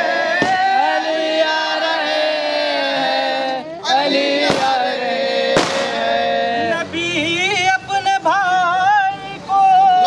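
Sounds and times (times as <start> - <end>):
men singing together: 0.0 - 10.0
sharp crack: 4.4 - 4.8, 5.5 - 6.1.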